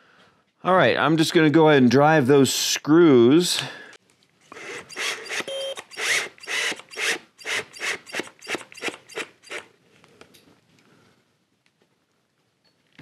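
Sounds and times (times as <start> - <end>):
cordless drill driving screws: 4.5 - 9.7.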